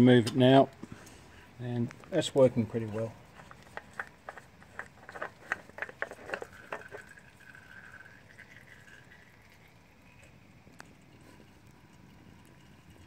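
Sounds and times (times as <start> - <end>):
faint oil trickle: 0.6 - 13.0
oil dripping into pan: 3.9 - 13.0.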